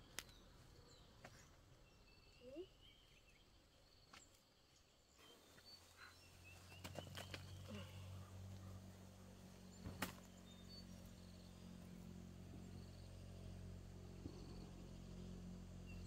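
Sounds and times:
faint bird chirps: 0.0s - 13.4s
low hum: 7.3s - 16.0s.

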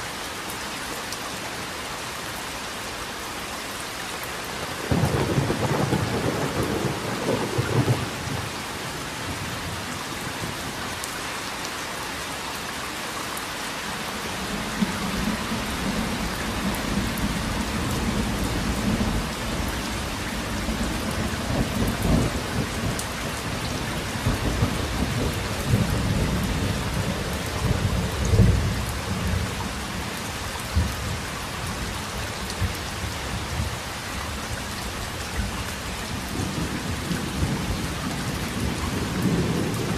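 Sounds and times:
steady rain: 0.0s - 39.9s
thunder rumbling: 4.8s - 8.5s, 36.3s - 39.9s.

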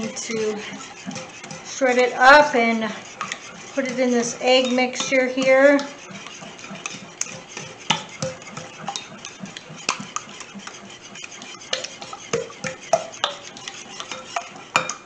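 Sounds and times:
whisk beating in a ceramic bowl: 0.0s - 15.0s.

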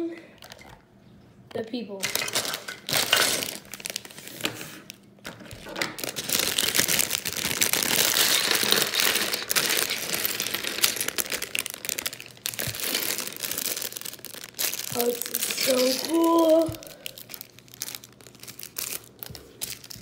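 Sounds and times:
plastic bag crinkling: 0.4s - 0.8s, 2.0s - 20.0s
plastic bricks clattering on table: 2.0s - 3.7s.

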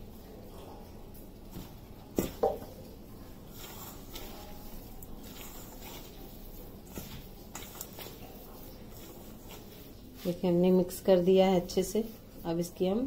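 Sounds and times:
hand squishing food mixture: 0.1s - 13.0s.

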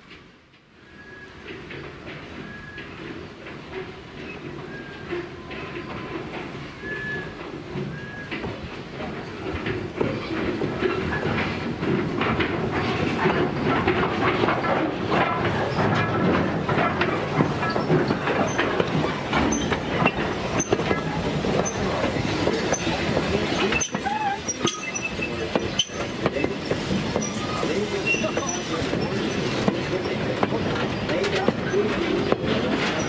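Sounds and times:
train wheels clattering: 0.0s - 33.0s
wheel squeals: 4.2s - 8.5s, 16.8s - 30.2s.

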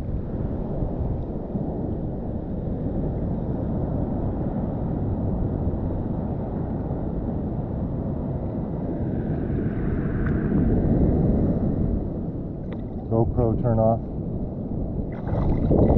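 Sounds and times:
muffled sea water and wind rumble: 0.0s - 15.9s.

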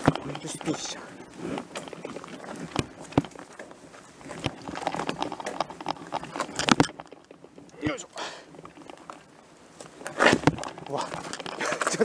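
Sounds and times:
tyre crunching on loose dirt: 0.0s - 12.0s.

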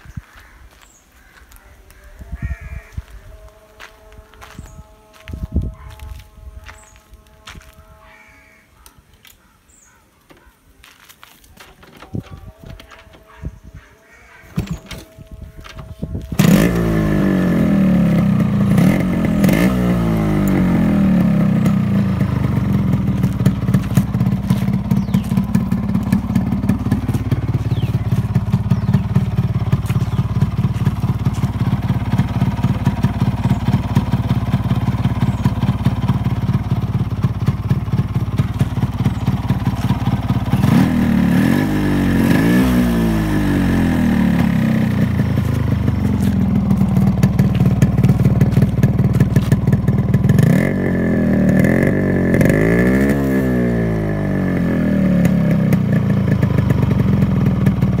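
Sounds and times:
engine throttle blips: 14.6s - 58.0s
motorcycle engine idling: 14.6s - 58.0s.

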